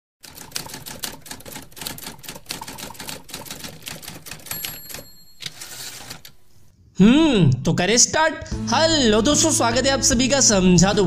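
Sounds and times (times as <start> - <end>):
typewriter bell ring: 4.3 - 6.3.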